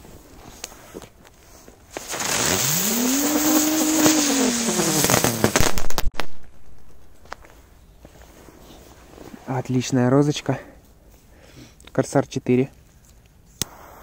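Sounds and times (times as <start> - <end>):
firecracker hissing rush: 1.9 - 6.1, 13.6 - 14.0
firecracker crackles and bang: 1.9 - 7.5.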